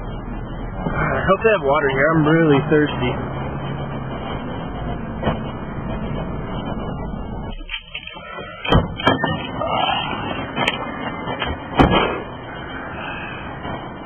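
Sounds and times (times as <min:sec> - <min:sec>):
steady low rumble: 0:00.0 - 0:08.1
sharp clicks and thumps: 0:03.6 - 0:09.6
car doors opening and shutting: 0:04.4 - 0:09.7, 0:10.3 - 0:12.3.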